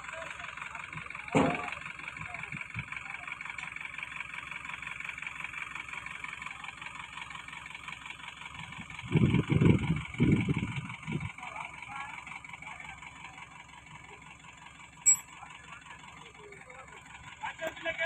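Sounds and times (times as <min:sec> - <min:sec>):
diesel engine idling: 0:00.0 - 0:18.0
loud low rumbles: 0:09.0 - 0:11.3.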